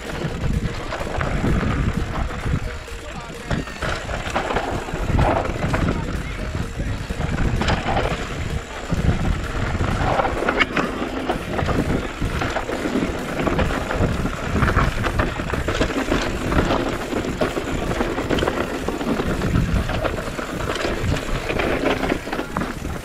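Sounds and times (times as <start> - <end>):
bike rattling and knocking: 0.0 - 23.0
tyre noise: 0.0 - 23.0
wind buffeting microphone: 0.0 - 23.0.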